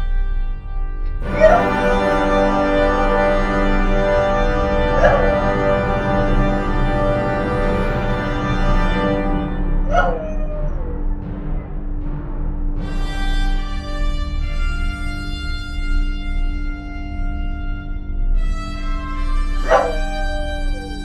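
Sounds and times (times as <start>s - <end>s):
sustained organ chord: 0.0s - 12.1s, 13.4s - 21.0s.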